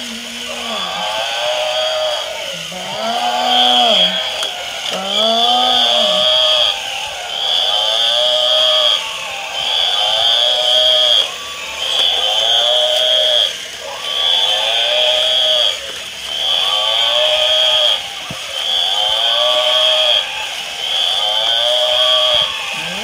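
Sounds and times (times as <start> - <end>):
electronic bleat-like animal call: 0.0 - 6.8, 19.2 - 23.0
high steady electronic tone: 2.5 - 9.0.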